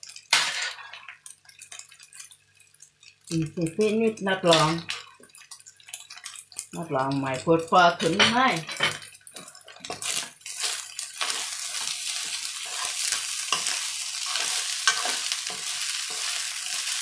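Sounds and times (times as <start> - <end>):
rice sizzling in a wok: 0.0 - 17.0
metal spoon scraping a wok: 8.8 - 17.0.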